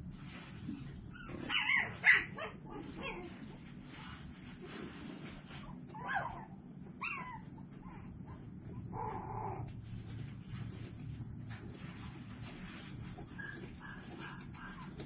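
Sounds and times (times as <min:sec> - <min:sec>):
low steady hum: 0:00.0 - 0:15.0
puppy yelping and whining: 0:00.8 - 0:03.7, 0:05.4 - 0:09.8, 0:13.2 - 0:15.0.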